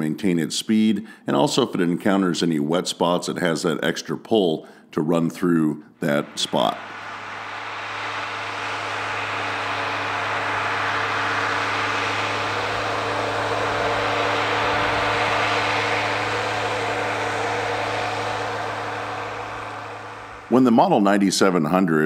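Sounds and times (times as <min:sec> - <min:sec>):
tractor diesel engine running: 0:06.1 - 0:20.8.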